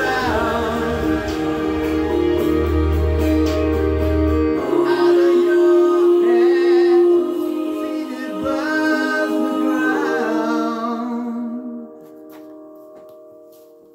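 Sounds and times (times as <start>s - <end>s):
man singing into microphone: 0.0s - 2.5s, 4.6s - 12.1s
backing music: 0.0s - 13.9s.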